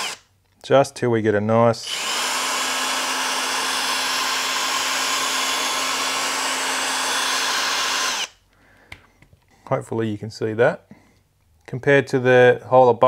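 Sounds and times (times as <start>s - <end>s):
electric drill grinding metal: 0.0s - 0.2s, 1.8s - 8.4s.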